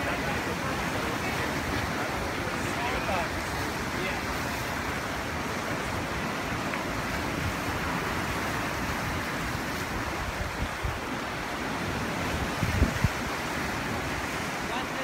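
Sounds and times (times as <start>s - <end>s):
ocean surf breaking on rocks: 0.0s - 15.0s
wind buffeting microphone: 3.3s - 14.6s.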